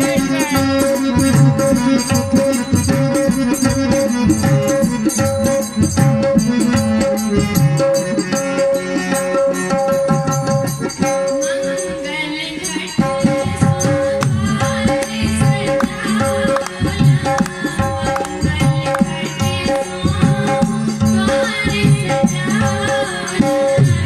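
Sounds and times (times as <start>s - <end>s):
harmonium melody: 0.0s - 24.0s
rattling percussion: 0.0s - 24.0s
tabla: 0.0s - 24.0s.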